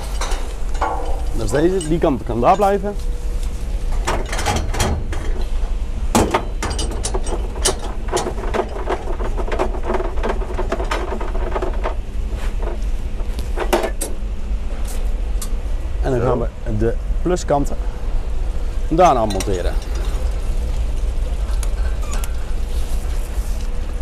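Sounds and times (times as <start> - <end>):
metallic clanks of hose couplings: 0.0 - 12.0, 18.9 - 20.4
steady low rumble: 0.0 - 24.0.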